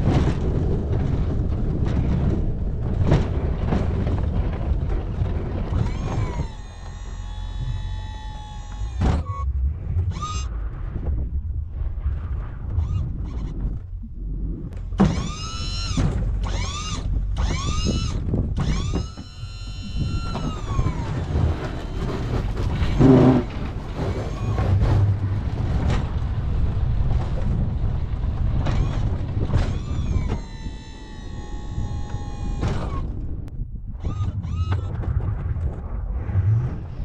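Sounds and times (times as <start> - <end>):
loud mechanical clunk: 0.0 - 9.4, 27.1 - 33.3
low vehicle rumble: 0.0 - 37.0
mechanical whine: 1.0 - 11.3, 12.7 - 14.0, 14.7 - 37.0.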